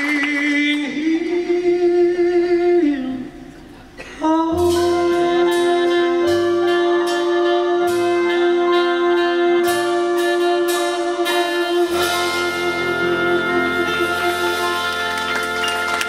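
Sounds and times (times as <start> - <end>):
piano and bass backing track: 0.1 - 16.0
man singing a held high note: 4.2 - 10.6.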